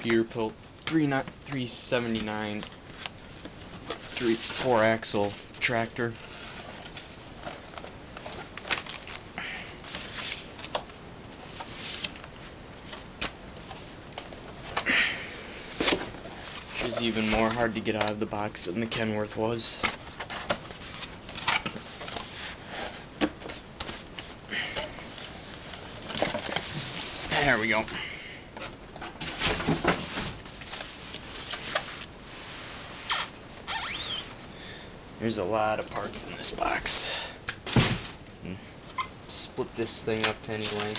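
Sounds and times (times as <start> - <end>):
styrofoam squeaking against cardboard: 33.0 - 34.4.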